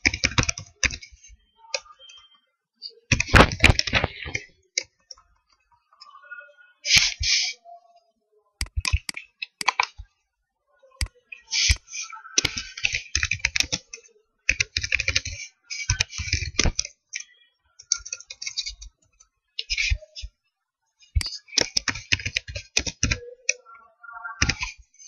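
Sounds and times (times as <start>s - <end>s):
computer keyboard typing: 0.0s - 2.2s, 3.1s - 5.6s, 8.6s - 10.0s, 11.0s - 20.0s, 21.1s - 23.6s, 24.4s - 24.8s.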